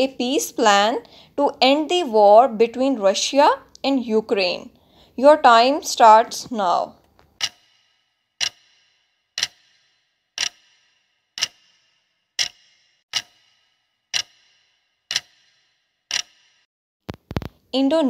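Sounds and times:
countdown timer ticking: 7.4 - 16.6.

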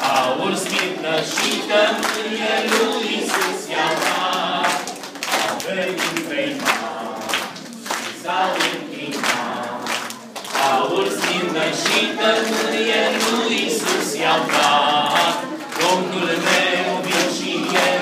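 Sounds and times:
children singing: 0.0 - 18.0
hands clapping: 0.0 - 18.0.

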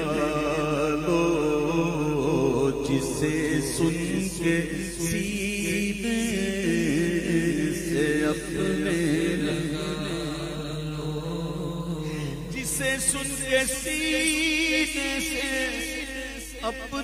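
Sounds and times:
men chanting through microphones: 0.0 - 17.0.

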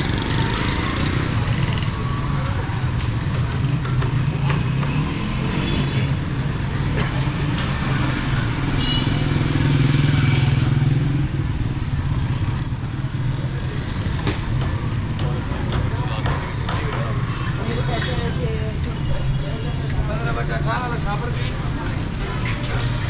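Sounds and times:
motorcycle and car engines passing: 0.0 - 16.2.

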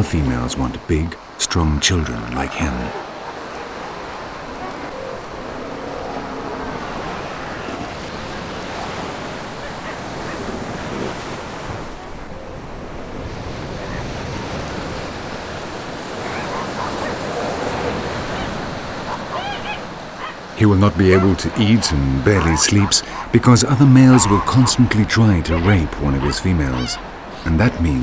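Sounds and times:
ocean surf breaking on beach: 0.0 - 28.0.

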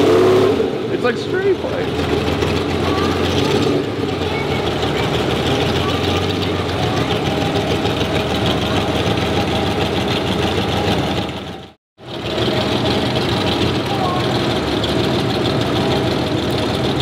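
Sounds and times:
car engine running at low speed: 0.0 - 17.0.

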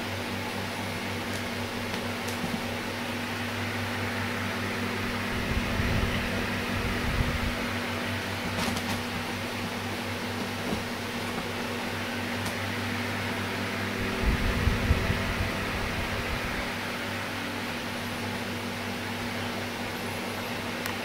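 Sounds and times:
low hum with hiss: 0.0 - 21.0.

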